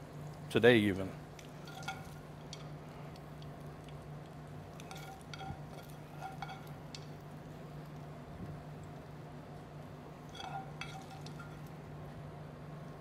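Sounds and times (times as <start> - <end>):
steady low hum: 0.0 - 13.0
metal spoon scraping a pan: 1.6 - 2.7, 4.8 - 7.0, 10.2 - 11.7.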